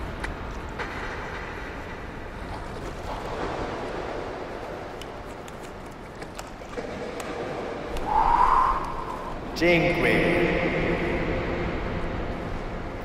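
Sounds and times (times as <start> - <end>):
wind rushing: 7.9 - 9.6.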